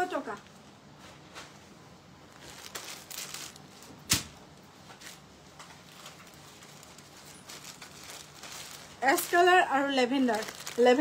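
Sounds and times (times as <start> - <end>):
cloth rustling: 2.3 - 3.9, 5.0 - 11.0.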